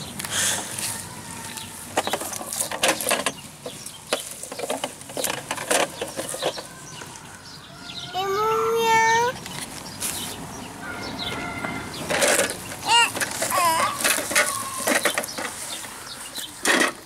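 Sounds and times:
plastic toy vehicles handled: 0:00.2 - 0:07.3, 0:12.1 - 0:17.0.

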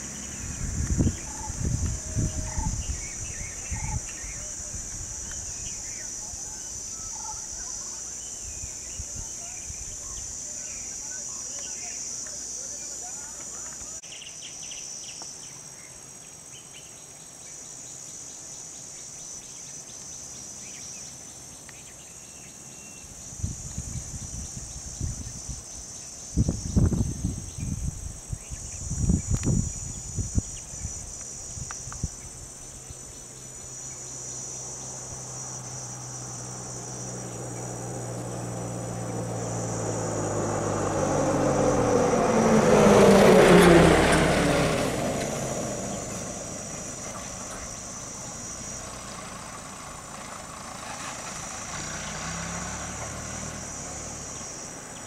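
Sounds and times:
lorry engine passing by: 0:00.0 - 0:06.0, 0:34.7 - 0:55.0
insects buzzing: 0:00.0 - 0:55.0.

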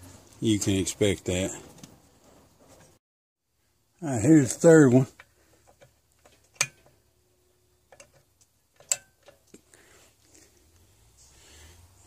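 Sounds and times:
metal lamp clamp clicking: 0:08.8 - 0:09.4.

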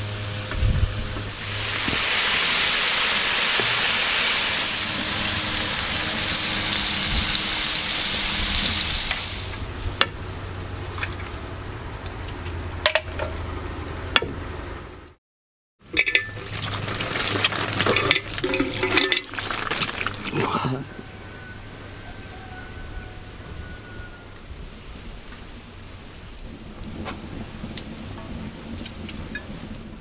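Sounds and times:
food sizzling in frying pan: 0:01.1 - 0:09.7, 0:16.0 - 0:20.2.

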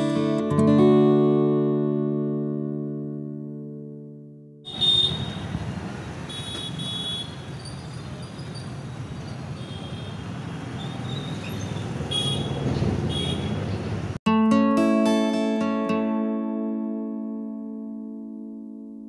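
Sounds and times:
street traffic rumble: 0:04.7 - 0:14.2.

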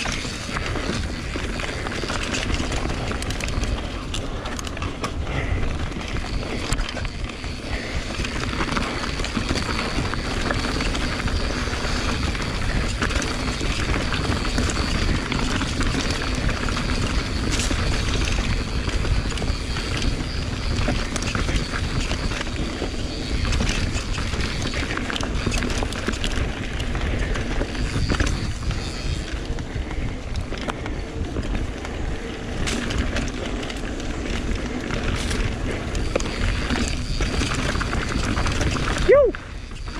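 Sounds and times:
bike frame rattling: 0:00.0 - 0:39.9
tyres rolling over dirt: 0:00.0 - 0:39.9
wind buffeting microphone: 0:00.0 - 0:39.9.

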